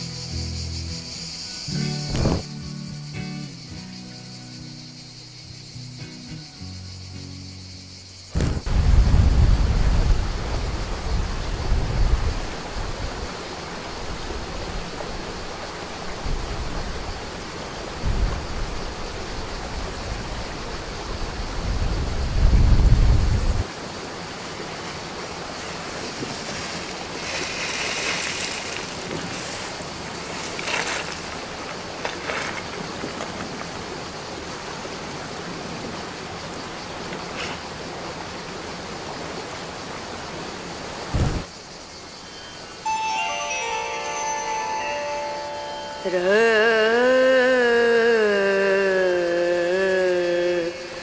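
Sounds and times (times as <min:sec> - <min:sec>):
wind buffeting microphone: 0:08.4 - 0:13.3, 0:17.9 - 0:23.6
wind rushing: 0:08.4 - 0:13.3, 0:21.1 - 0:23.6.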